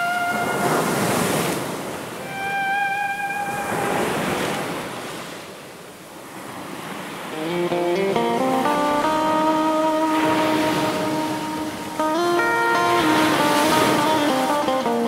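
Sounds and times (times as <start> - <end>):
plucked guitar notes: 0.0 - 1.1, 2.2 - 4.2, 7.3 - 15.0
slow ambient music: 0.0 - 1.4, 2.2 - 4.3, 7.3 - 15.0
surf-like wash of noise: 0.0 - 15.0.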